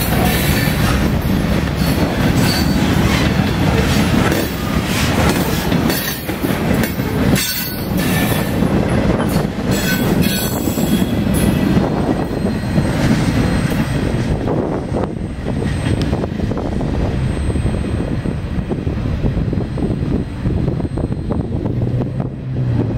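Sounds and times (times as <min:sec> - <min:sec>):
freight train wheels clattering: 0:00.0 - 0:22.8.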